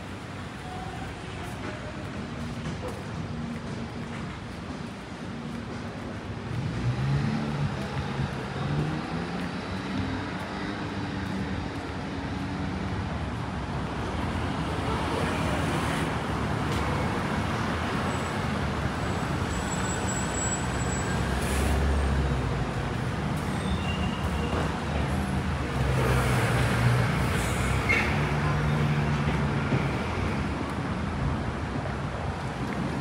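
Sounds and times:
vehicles passing: 0.0s - 33.0s.

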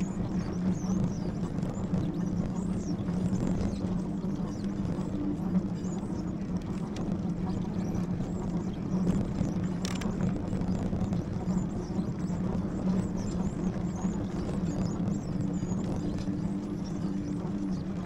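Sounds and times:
electric bike motor hum: 0.0s - 18.0s
sharp click: 9.8s - 10.1s.

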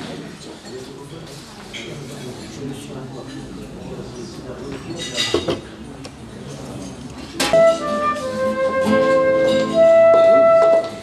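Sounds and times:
classical guitar chords: 7.4s - 11.0s
flute playing long notes: 7.5s - 11.0s.

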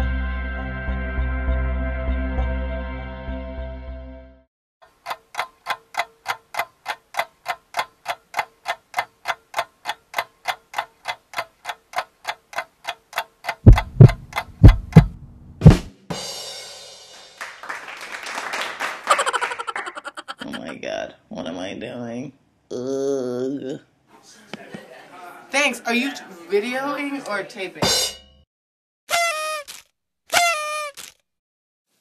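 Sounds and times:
steady ticking: 4.8s - 15.2s
heavy drum thumps: 13.7s - 16.2s
cymbal and drums crash: 15.6s - 17.4s, 27.8s - 28.3s.

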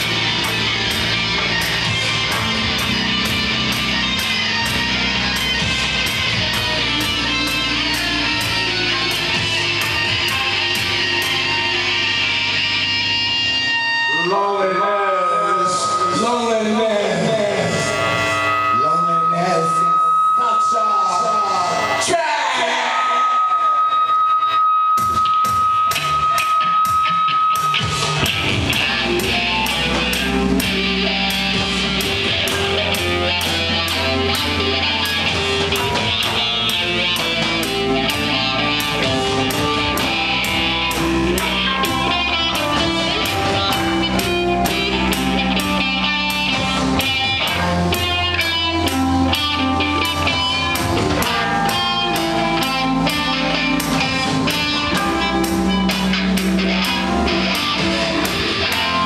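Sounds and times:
live rock band playing: 0.0s - 22.1s, 23.4s - 59.0s
bass line: 0.0s - 59.0s
guitar: 0.0s - 59.0s
held high note: 13.4s - 26.8s, 50.0s - 59.0s
drums beating: 26.8s - 59.0s.

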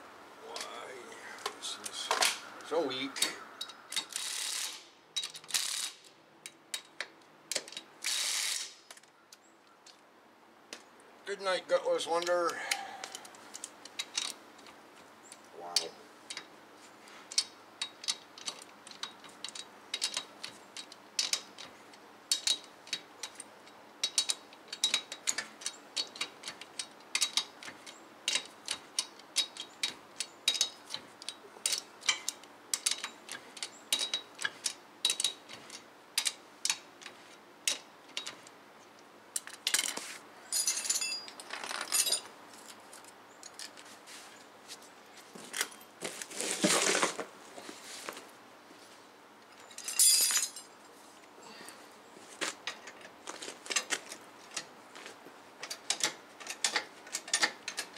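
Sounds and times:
ratchet wrench clicking: 24.0s - 35.4s.

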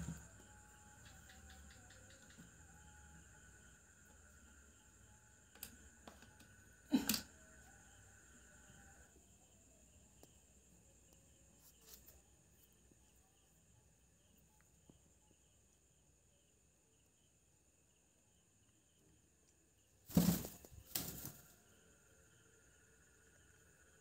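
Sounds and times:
faint high-pitched tone: 0.0s - 6.8s
bird wings flapping: 20.1s - 21.4s.

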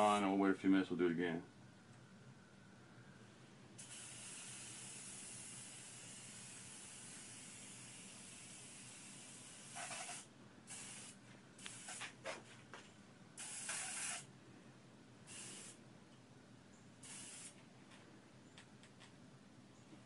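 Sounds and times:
spray bottle hissing: 3.8s - 12.2s, 13.4s - 14.3s, 15.3s - 15.8s, 17.0s - 17.6s.

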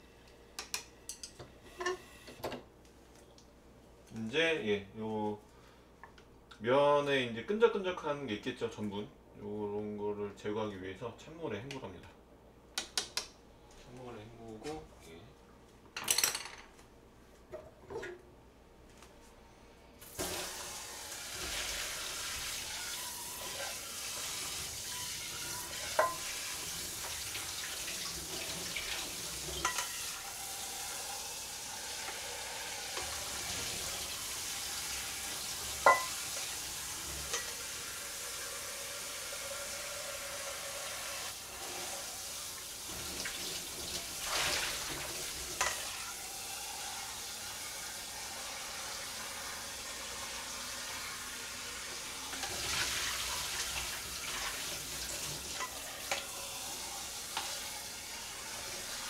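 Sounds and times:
cookware clinking: 0.6s - 2.0s, 25.8s - 26.3s, 29.6s - 30.2s, 35.8s - 36.2s
tap water running into sink: 20.1s - 59.0s.

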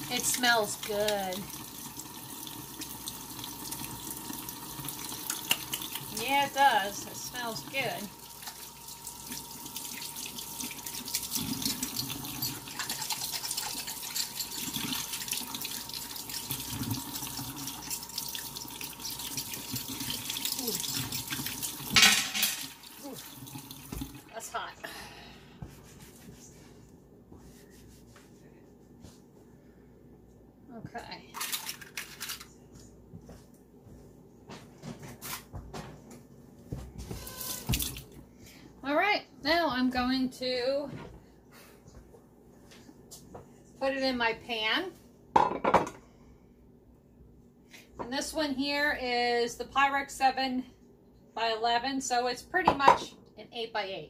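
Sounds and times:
faucet running: 0.0s - 24.5s, 37.2s - 38.2s.

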